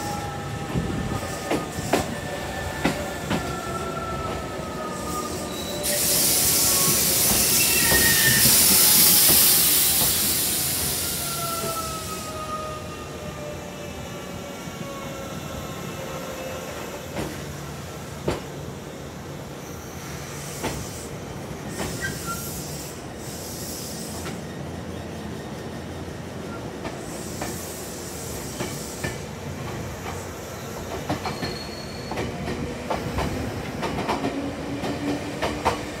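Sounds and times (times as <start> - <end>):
train wheels squealing: 0.0 - 36.0
air hissing: 5.2 - 11.4.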